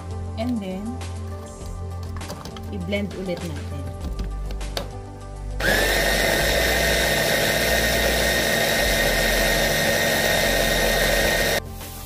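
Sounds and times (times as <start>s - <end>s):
food processor motor whining: 5.6s - 11.6s.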